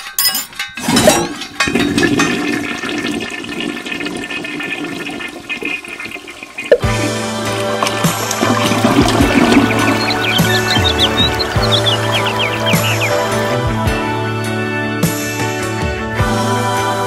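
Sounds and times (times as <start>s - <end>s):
metallic clinking: 0.0s - 1.6s
toilet flushing: 0.8s - 13.6s.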